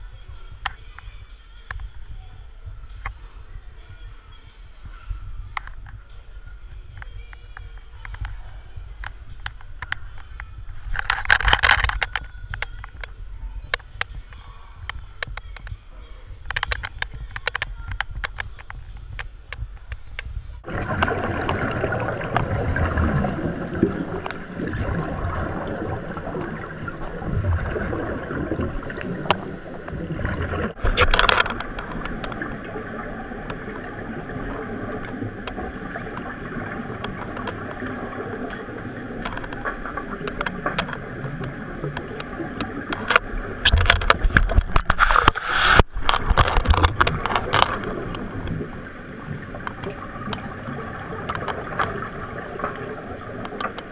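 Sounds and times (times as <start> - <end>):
bubbles gurgling underwater: 20.6 - 53.9
diver breathing through regulator: 22.3 - 24.6, 28.6 - 30.8, 37.9 - 39.5.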